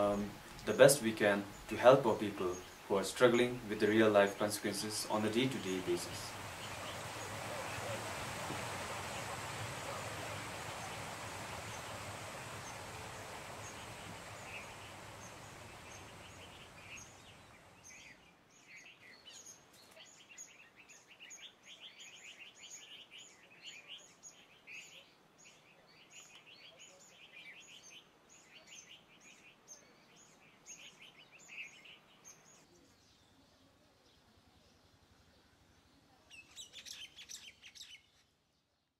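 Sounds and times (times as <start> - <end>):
small birds chirping: 0.0 - 38.9
steady rushing noise: 4.6 - 17.9.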